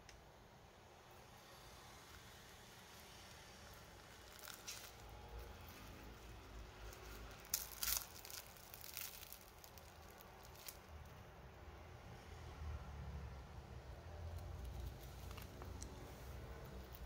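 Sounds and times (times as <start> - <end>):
pastry crust crackling when torn: 2.1 - 11.2, 14.3 - 17.0.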